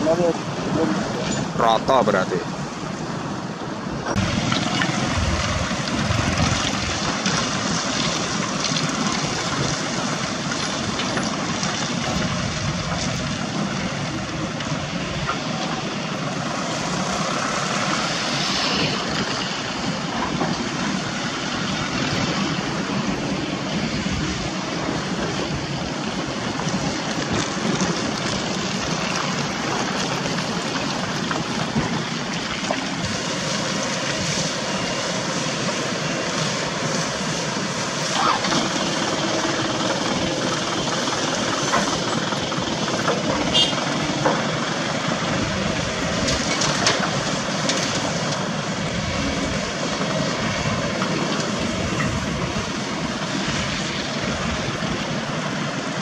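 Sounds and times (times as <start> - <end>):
diesel truck engines droning: 0.0 - 56.0.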